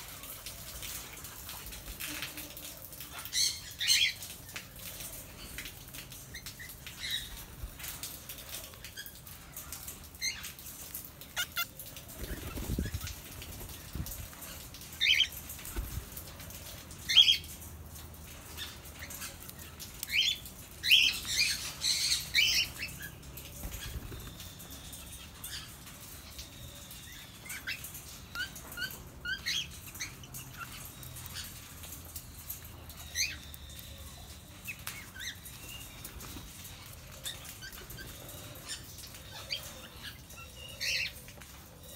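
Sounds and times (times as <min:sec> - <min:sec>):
wing flapping: 0:10.8 - 0:16.3
cockatiels chirping and squawking: 0:11.2 - 0:14.1.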